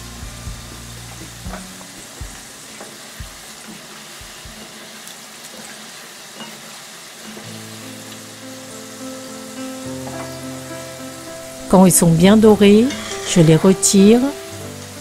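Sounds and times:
background music: 0.0 - 3.5, 7.5 - 15.0
chicken deep-frying in oil: 0.0 - 15.0.

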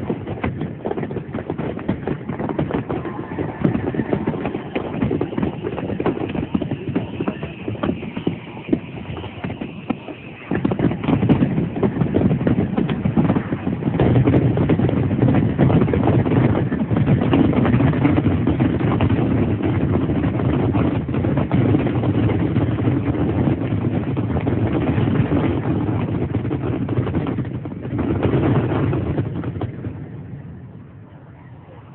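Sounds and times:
fireworks booms and crackle: 0.0 - 31.9.

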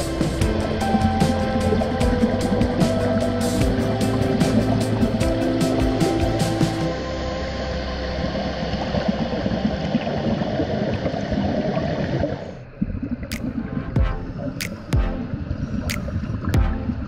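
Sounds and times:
underwater bubbling: 0.0 - 6.9, 7.8 - 17.0
sharp clicks: 14.6 - 14.9.

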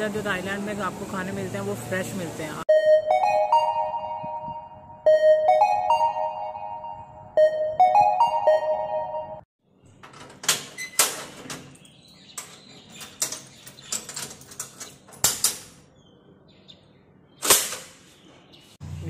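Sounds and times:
metal grille door clicks and clanks: 10.0 - 15.8.

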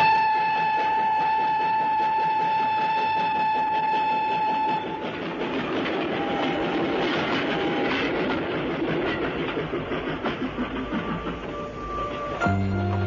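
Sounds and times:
train wheels clattering: 0.0 - 13.0
held high tone: 11.5 - 13.0.

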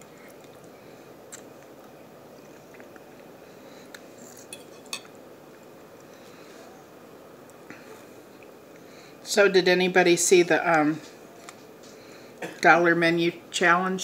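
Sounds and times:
steady low hiss: 0.0 - 14.0
fork clinking on plate: 4.5 - 5.1.

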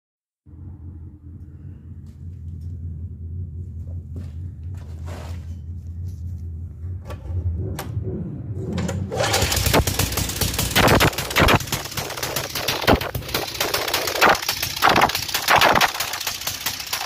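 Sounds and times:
small engine idling and revving: 7.0 - 17.0.

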